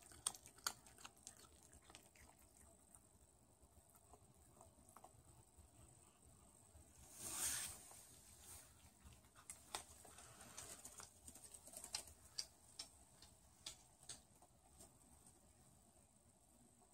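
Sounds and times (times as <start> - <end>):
cat chewing crunching clicks: 0.0 - 3.1
short rustling noise: 7.0 - 8.8.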